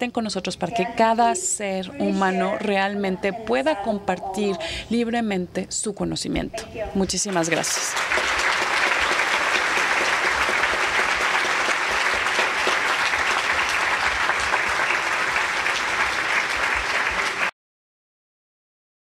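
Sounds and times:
audience applauding: 7.3 - 17.5.

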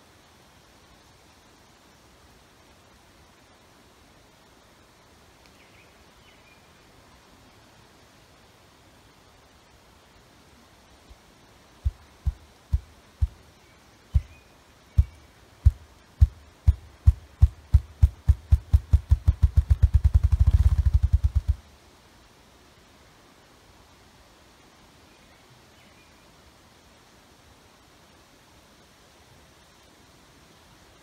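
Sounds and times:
grouse wingbeat drumming: 11.8 - 13.4, 14.2 - 14.4, 15.0 - 21.6.

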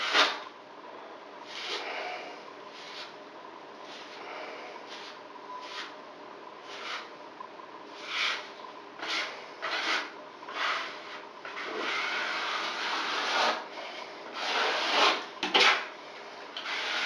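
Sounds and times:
paintbrush scrubbing board: 1.5 - 1.9, 2.7 - 3.2, 3.8 - 6.0, 6.6 - 7.1, 7.9 - 15.9, 16.6 - 17.0.

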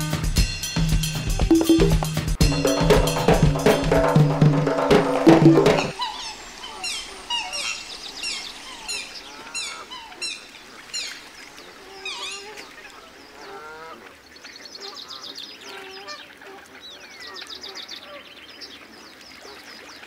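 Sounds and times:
lower gliding bird calls: 2.6 - 14.0
high falling bird chirps: 5.9 - 11.2.

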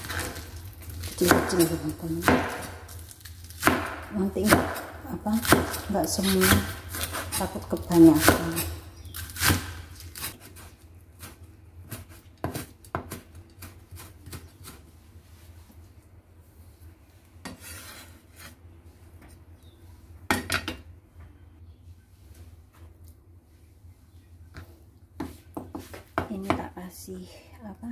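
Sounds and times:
blade scraping wood: 0.0 - 14.8, 17.4 - 18.6
cleaver chopping on cutting board: 1.2 - 2.8, 3.6 - 10.3.

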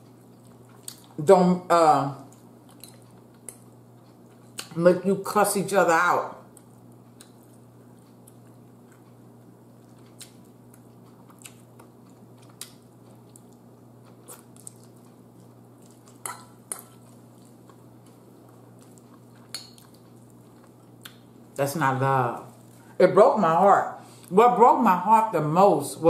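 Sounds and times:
quiet chewing: 0.0 - 1.2, 2.2 - 4.8, 6.5 - 21.6, 22.4 - 23.0
steady low hum: 0.0 - 26.0.

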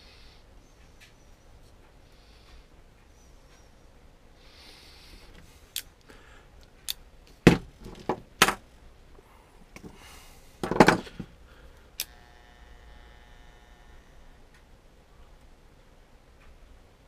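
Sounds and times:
tools knocking on wooden workbench: 7.5 - 8.6, 10.6 - 11.3
tools clattering: 10.6 - 11.3.

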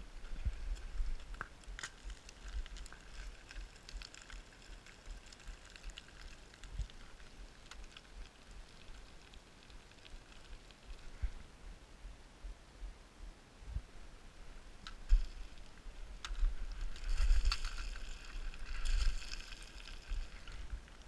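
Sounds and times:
footsteps on loose scree: 16.2 - 20.7.

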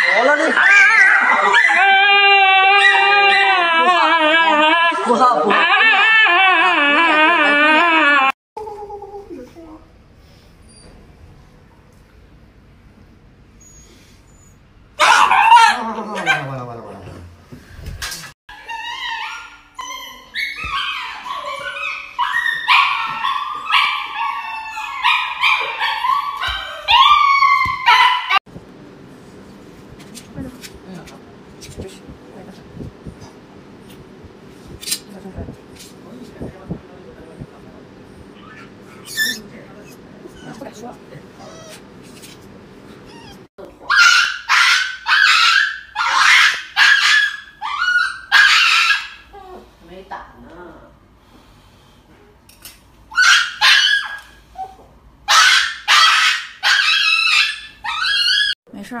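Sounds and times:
dog yelping and whining: 0.0 - 8.4, 18.5 - 28.4, 38.4 - 40.7, 41.4 - 41.9, 43.0 - 49.6, 53.1 - 58.6.

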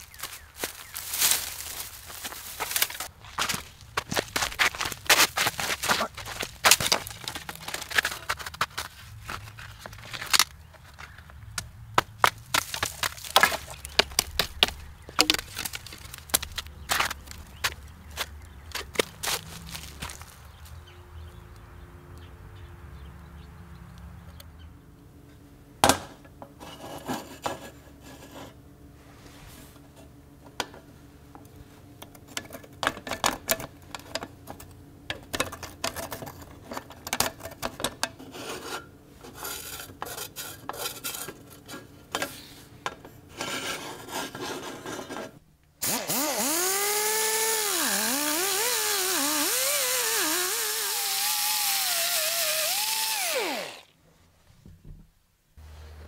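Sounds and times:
rotary grinder whining on iron: 45.8 - 53.9.

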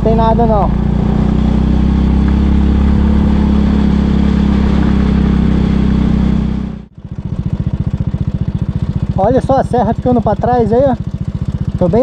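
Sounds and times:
motorcycle engine climbing hill: 0.0 - 12.0.

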